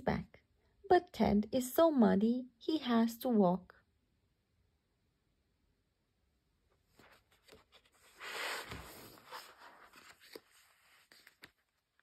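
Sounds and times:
book pages rustling: 6.7s - 12.0s.

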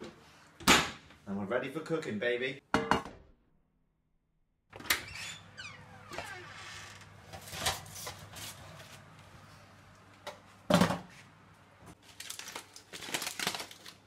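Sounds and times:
aluminium foil crinkling: 12.0s - 14.0s.

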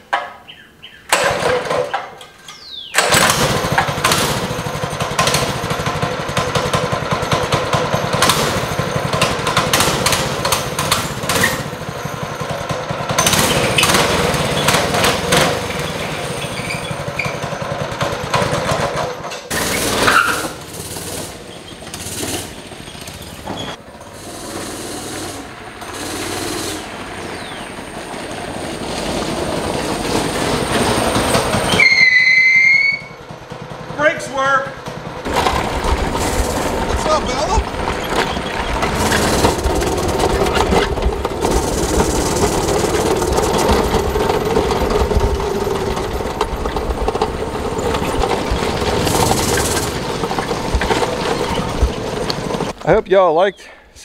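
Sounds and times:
small engine running: 3.0s - 52.8s
high squeal: 15.7s - 17.6s, 19.6s - 20.6s, 30.2s - 33.3s.

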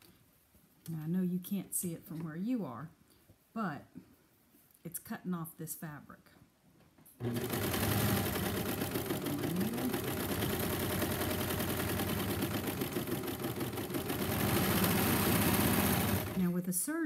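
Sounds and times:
serger sewing machine whirring: 7.2s - 16.6s.

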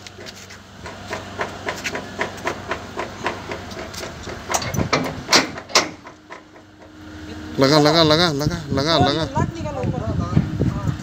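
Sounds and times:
metal door rattling and clanking: 0.2s - 7.0s
metal knocks: 0.2s - 7.0s.

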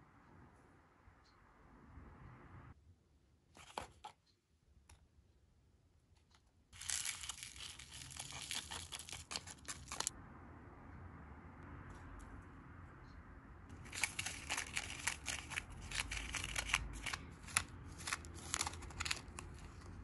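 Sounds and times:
foil sachet crinkling: 6.8s - 10.1s, 13.8s - 20.0s
foil sachet tearing: 6.8s - 10.1s, 13.8s - 19.9s.

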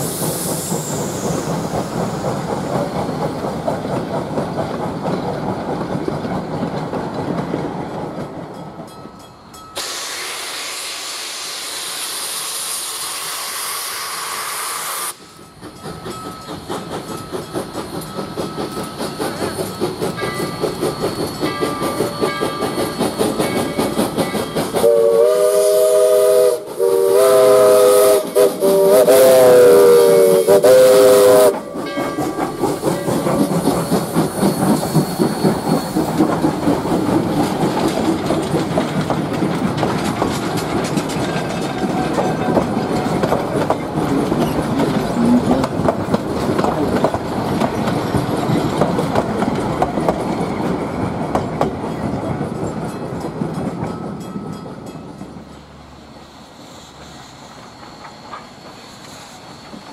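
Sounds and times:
steam hissing: 0.0s - 6.0s, 9.8s - 51.2s, 55.4s - 59.9s
steam locomotive chuffing: 0.0s - 59.9s
steam whistle blasts: 24.8s - 31.9s.

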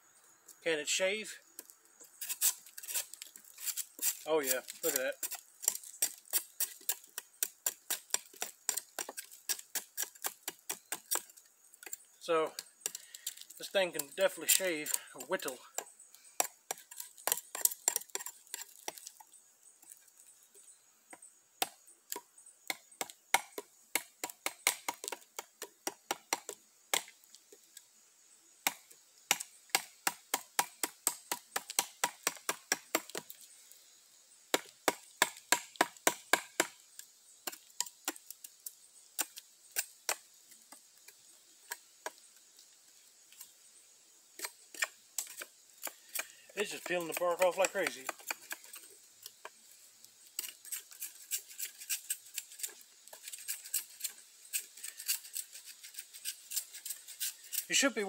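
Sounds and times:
knife shaving wood: 2.2s - 12.1s, 12.8s - 19.2s, 44.4s - 48.9s, 50.4s - 58.0s.

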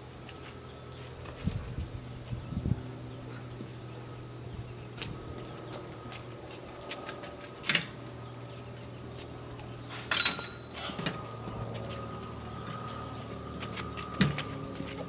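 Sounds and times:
steady background hum: 0.0s - 15.0s
metal clanks and knocks: 9.9s - 11.3s.

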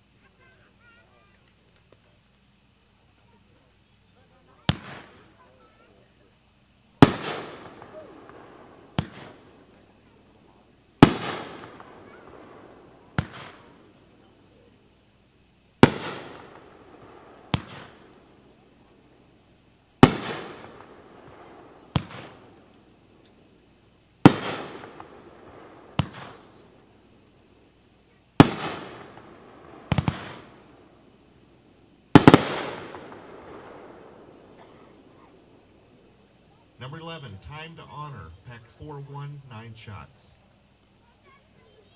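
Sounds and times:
firework burst with echo: 4.4s - 6.1s, 7.0s - 14.9s, 15.6s - 40.4s
firework launch thump: 9.0s - 9.4s, 13.2s - 13.7s, 17.5s - 18.0s, 26.0s - 26.4s
rumbling echo: 32.4s - 36.2s.

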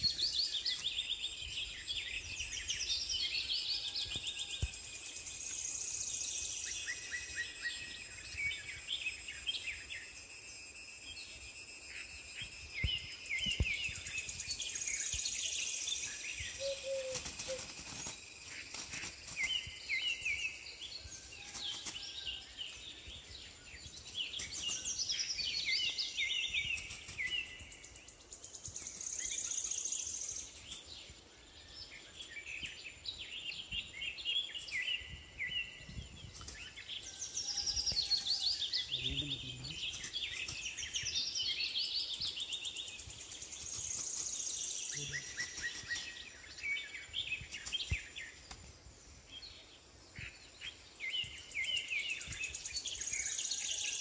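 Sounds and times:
high-pitched insect whine: 0.1s - 22.8s, 42.9s - 48.5s.

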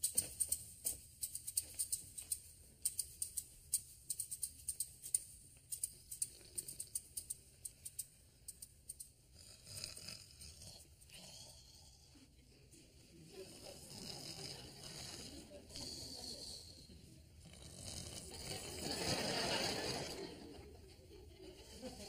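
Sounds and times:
sharp high-pitched clicking: 0.0s - 9.2s.

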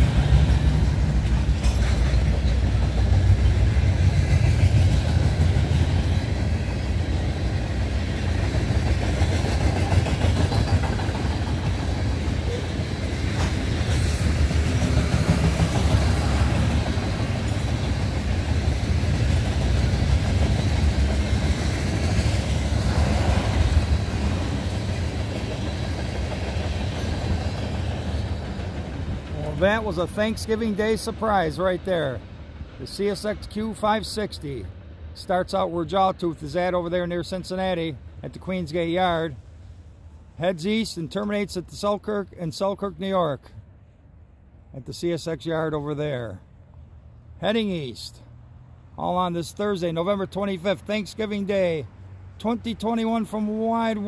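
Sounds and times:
freight train rumbling on rails: 0.0s - 54.0s.

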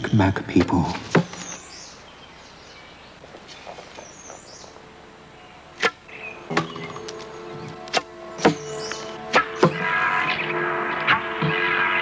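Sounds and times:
faint bird chirps: 0.0s - 7.8s, 8.4s - 10.6s
arrow shot from a bow: 5.8s - 6.7s.

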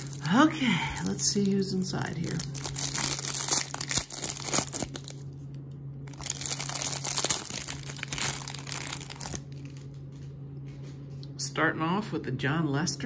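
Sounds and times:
plastic wrapper crinkling and tearing: 0.0s - 10.3s
faint low hum: 0.0s - 13.0s.

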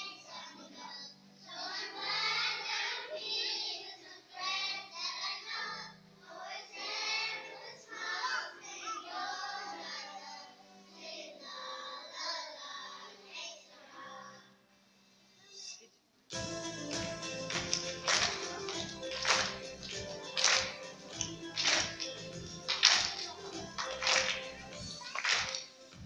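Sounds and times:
children's choir singing: 0.0s - 14.6s, 16.4s - 26.0s
low musical accompaniment: 16.3s - 26.0s.

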